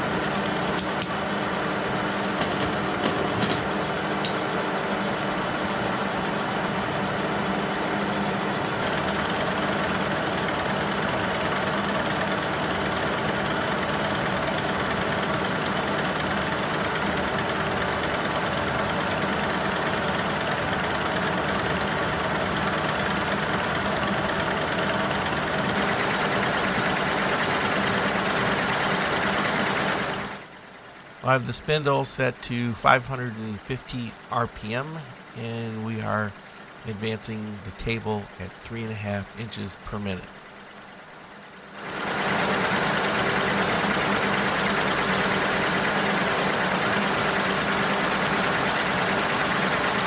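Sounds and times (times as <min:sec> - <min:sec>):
gear whine: 0:06.0 - 0:32.3, 0:34.1 - 0:50.0
milling machine running: 0:07.5 - 0:32.0, 0:40.3 - 0:50.0.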